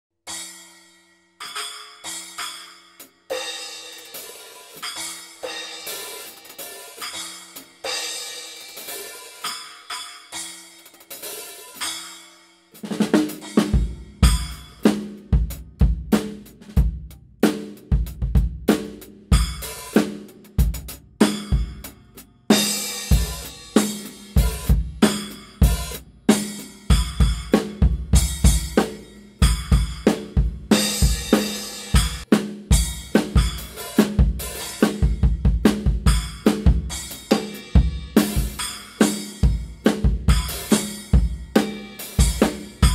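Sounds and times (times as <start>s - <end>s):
cymbals ringing: 0.3s - 12.8s, 13.4s - 14.8s, 21.3s - 32.2s, 36.0s - 42.9s
drum groove: 1.4s - 42.9s.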